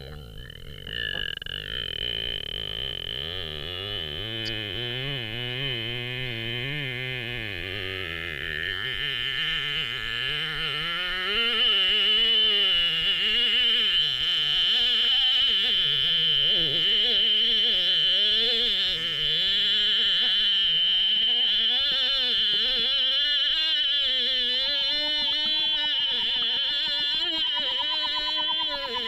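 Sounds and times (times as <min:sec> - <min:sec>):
person singing underwater: 0:00.0 - 0:19.4, 0:21.0 - 0:29.0
steady high tone: 0:18.6 - 0:29.0.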